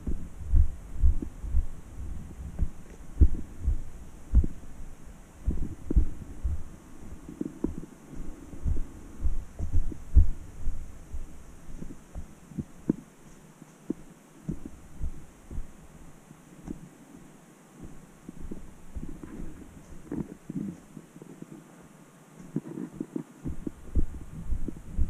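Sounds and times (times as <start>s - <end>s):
footsteps on a trail: 5.4s - 10.8s.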